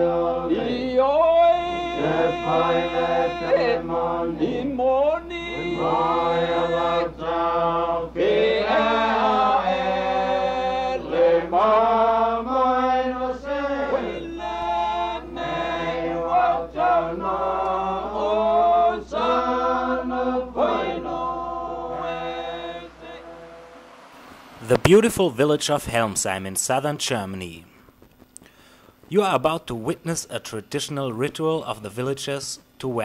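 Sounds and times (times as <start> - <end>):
voices chanting: 0.0 - 25.2.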